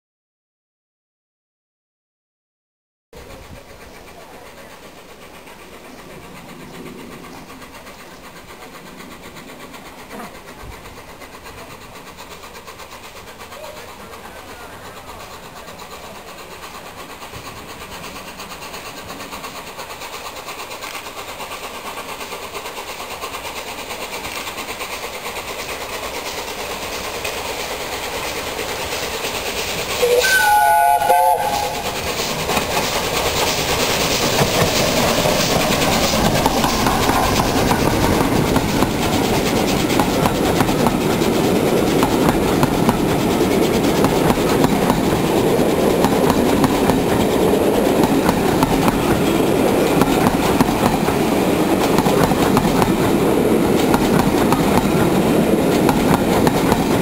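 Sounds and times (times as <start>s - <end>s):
steam locomotive rumble and rail noise: 3.2s - 57.0s
steam whistle blast: 30.0s - 32.0s.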